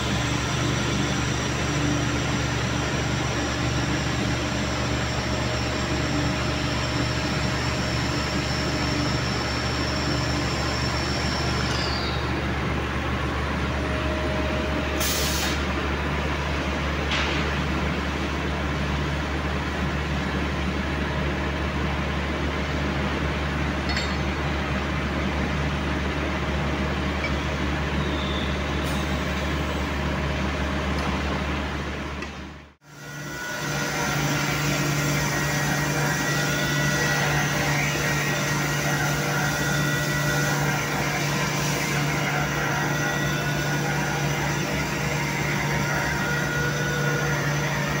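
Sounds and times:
high machine whine: 0.0 - 32.0.

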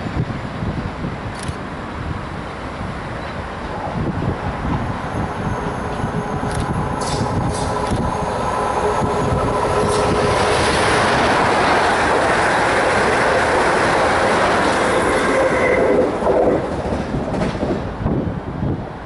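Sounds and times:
train passing at speed: 0.0 - 19.0.

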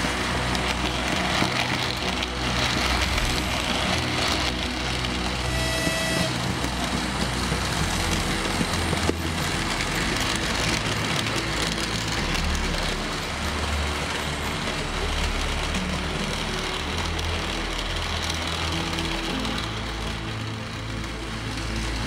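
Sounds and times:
model train rolling rumble: 0.0 - 22.0
brief high tone: 5.5 - 6.3.

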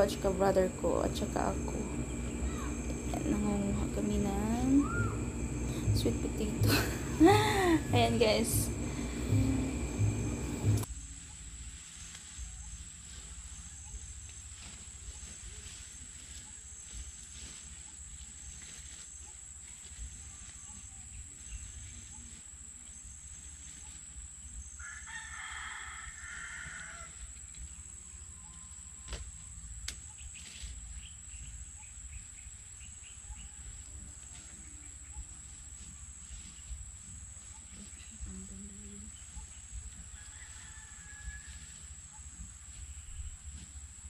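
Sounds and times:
low rumble: 0.0 - 11.4
high-pitched whine: 0.0 - 11.8
rooster crowing: 1.4 - 3.4, 4.7 - 10.8, 24.8 - 27.3, 40.1 - 41.8.

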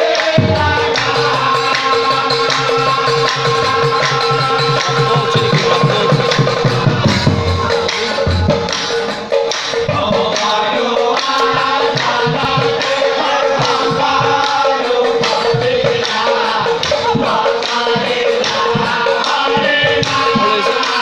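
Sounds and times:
drum strikes: 0.0 - 21.0
men singing devotional chant: 0.0 - 21.0
held drone note: 0.4 - 9.2.

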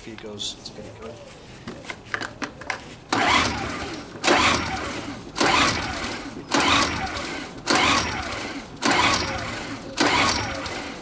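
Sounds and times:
recoil starter cord whirring: 3.1 - 11.0.

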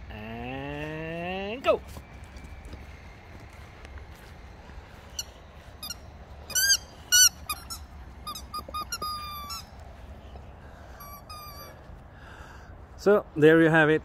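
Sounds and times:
squeaky rubber toy squeaking: 5.2 - 9.8, 11.0 - 11.8
dog chewing: 5.2 - 9.9.

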